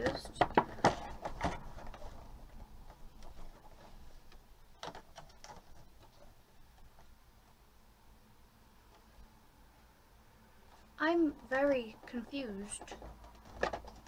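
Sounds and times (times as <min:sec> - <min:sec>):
cardboard box rustling: 0:00.0 - 0:07.1.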